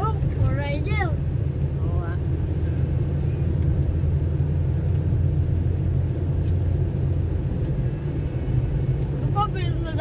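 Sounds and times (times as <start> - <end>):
car engine and road noise: 0.0 - 10.0.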